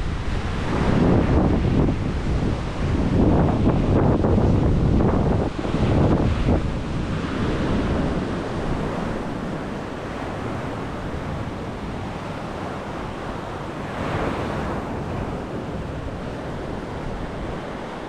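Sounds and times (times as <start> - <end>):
surf washing onto beach: 0.0 - 18.0
wind buffeting microphone: 0.0 - 18.0.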